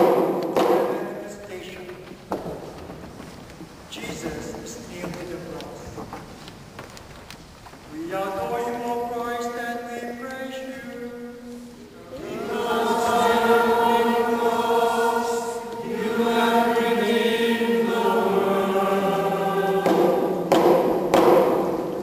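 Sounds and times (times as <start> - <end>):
chant-like hymn singing: 10.5 - 22.0.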